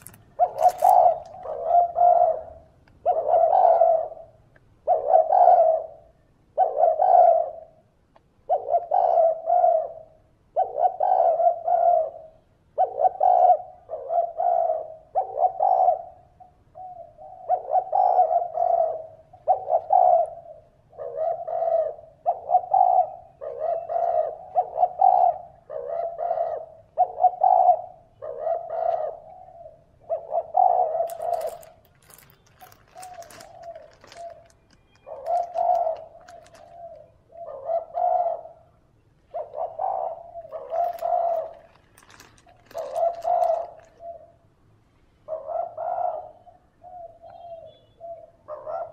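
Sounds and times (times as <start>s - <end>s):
crackling clicks: 0.0s - 1.5s, 31.1s - 37.1s, 40.5s - 44.1s
dove cooing: 0.0s - 38.7s, 39.3s - 44.4s, 45.3s - 48.9s.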